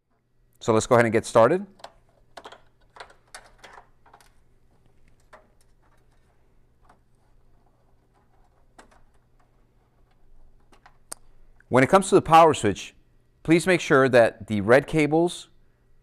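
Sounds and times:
clicks of handling wiring: 0:01.7 - 0:11.7.

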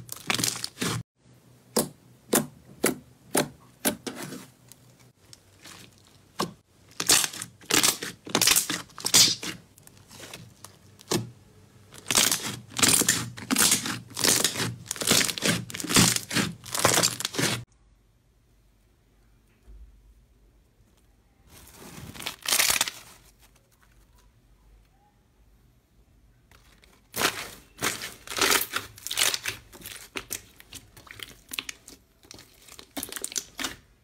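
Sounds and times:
slime crackling and squishing: 0:00.0 - 0:01.1, 0:04.8 - 0:17.7, 0:21.5 - 0:24.3, 0:26.5 - 0:34.0.

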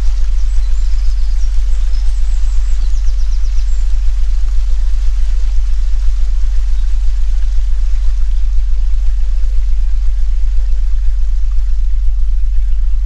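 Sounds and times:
even ambient hiss: 0:00.0 - 0:13.0
loud low humming tone: 0:00.0 - 0:13.0
small birds chirping: 0:00.0 - 0:13.0.

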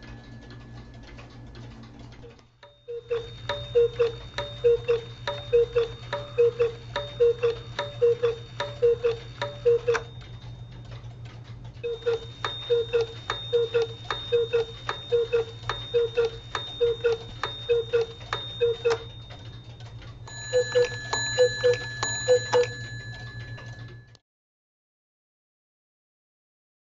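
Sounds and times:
clocks ticking: 0:00.0 - 0:24.2
faint steady high tone: 0:11.8 - 0:24.2.

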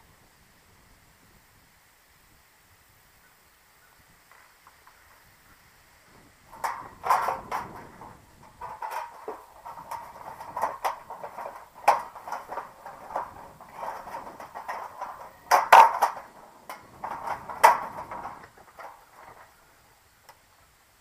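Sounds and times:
sharp metal knocks: 0:06.5 - 0:19.5.

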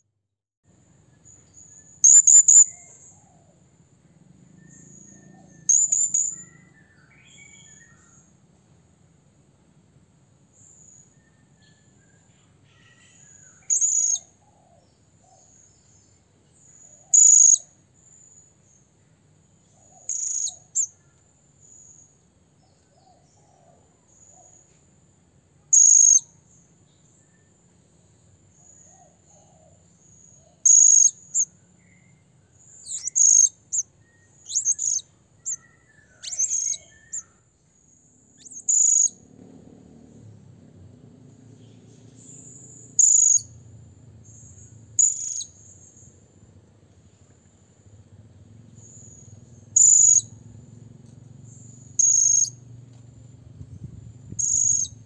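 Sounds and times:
parrot giving shrill high-pitched calls: 0:34.5 - 0:35.6, 0:36.2 - 0:37.2.

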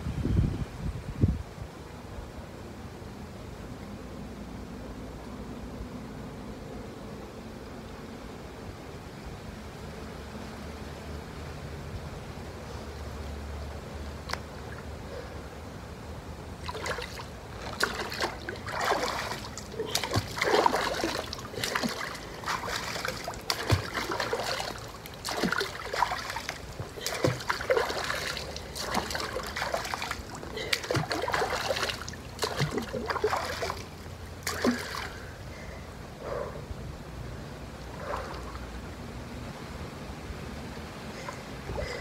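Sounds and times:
water splashing and sloshing: 0:16.5 - 0:36.4, 0:37.7 - 0:39.5.

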